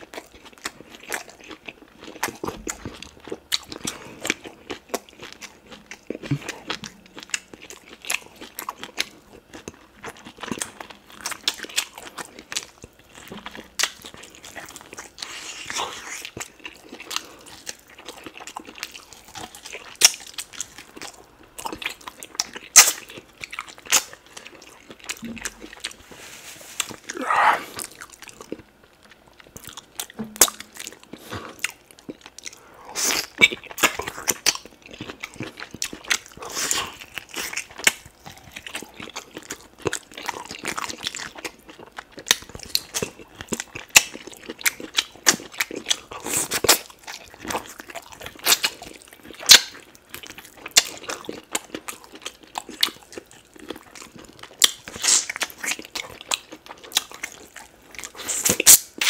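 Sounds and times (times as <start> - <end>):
wet chewing and biting: 0.0 - 26.1, 26.8 - 59.0
sucking: 25.2 - 27.9.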